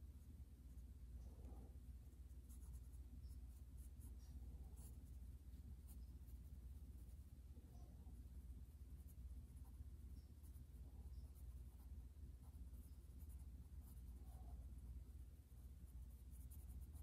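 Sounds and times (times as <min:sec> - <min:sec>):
pencil scratching on paper: 0:02.5 - 0:07.3, 0:09.0 - 0:14.6, 0:15.5 - 0:17.0.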